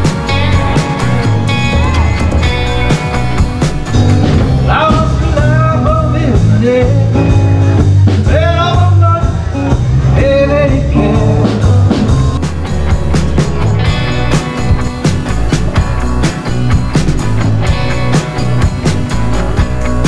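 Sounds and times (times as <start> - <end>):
acoustic and electric guitar: 0.0 - 20.0
person singing: 4.5 - 7.4, 8.2 - 11.7.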